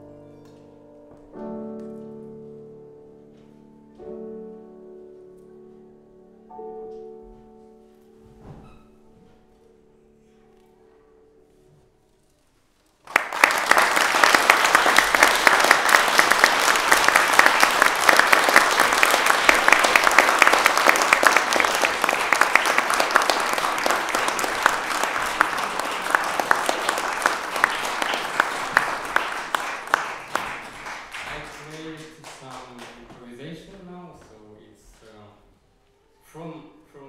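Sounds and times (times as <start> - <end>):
audience applauding: 13.0 - 33.5.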